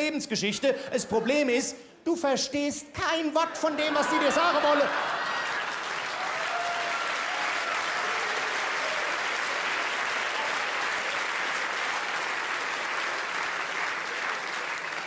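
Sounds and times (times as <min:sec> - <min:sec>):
audience laughter: 0:03.7 - 0:06.0
audience applauding: 0:04.1 - 0:15.0.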